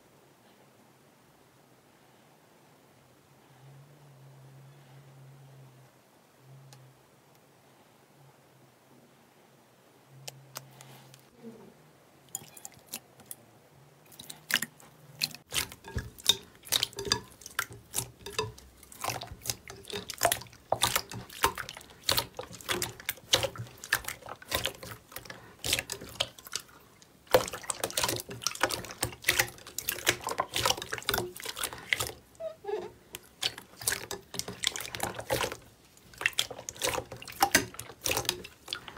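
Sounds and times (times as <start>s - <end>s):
slime squelching and popping: 14.1s - 32.3s, 33.2s - 38.9s.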